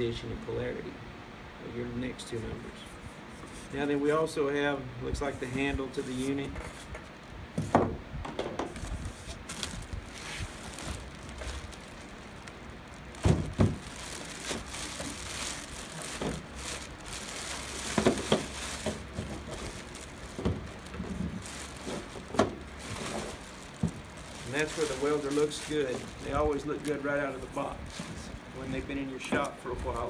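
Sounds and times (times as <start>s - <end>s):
plastic wrapping crinkling: 8.7s - 30.0s
dull knocks of handling: 13.2s - 13.9s.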